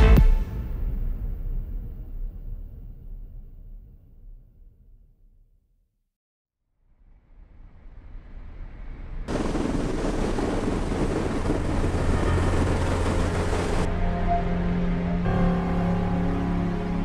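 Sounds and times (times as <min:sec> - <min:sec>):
engine noise with rushing hiss: 0:07.8 - 0:13.9
steady music tones: 0:11.3 - 0:17.0.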